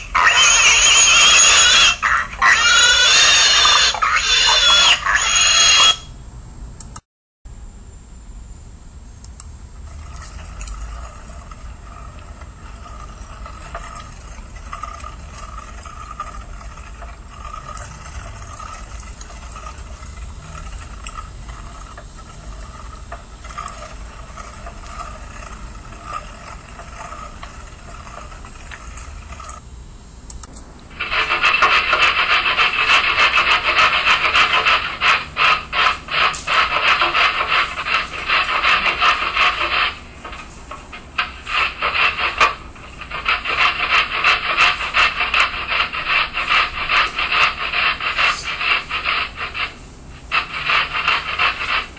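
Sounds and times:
hand-cranked meat grinder turning: 0:00.0 - 0:06.0, 0:09.9 - 0:29.6, 0:30.9 - 0:51.9
rasping strokes of root grating: 0:10.6 - 0:29.6, 0:31.0 - 0:51.9.

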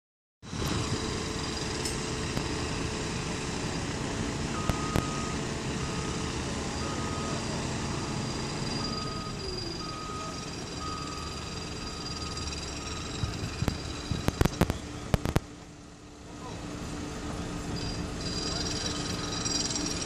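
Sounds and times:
diesel engine running: 0:00.4 - 0:20.0
electronic warning beeper: 0:04.6 - 0:14.7, 0:17.8 - 0:20.0.

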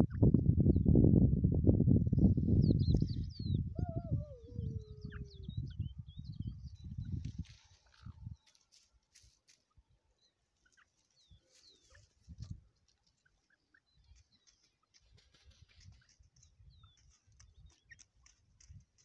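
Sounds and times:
low wind rumbles on microphone: 0:00.0 - 0:08.5, 0:11.2 - 0:12.7
faint bird chirps: 0:09.6 - 0:12.3.

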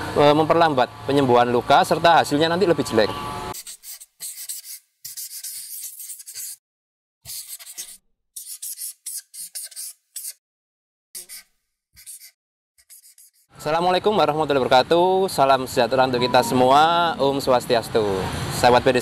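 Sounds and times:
marker scratching on paper: 0:03.5 - 0:06.6, 0:07.3 - 0:10.4, 0:11.2 - 0:13.5.

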